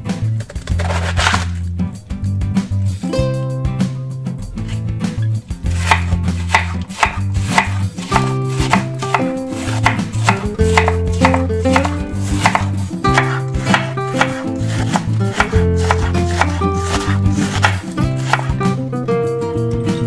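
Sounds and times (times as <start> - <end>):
knife shredding cabbage on board: 0.5 - 1.6, 5.7 - 18.6.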